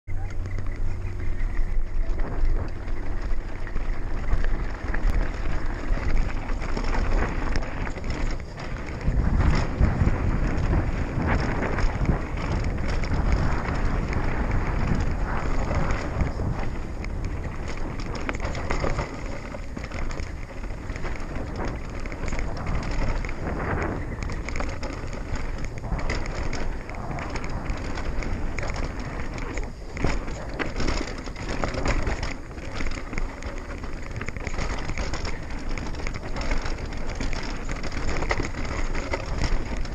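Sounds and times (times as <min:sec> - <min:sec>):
bike rattles and knocks: 0:00.1 - 0:39.9
tyres rushing on dirt: 0:00.1 - 0:39.9.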